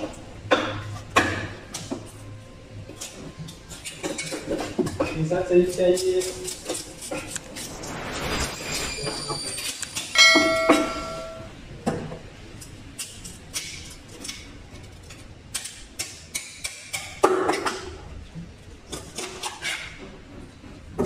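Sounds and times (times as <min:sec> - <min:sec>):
metallic clang: 0:10.0 - 0:11.6.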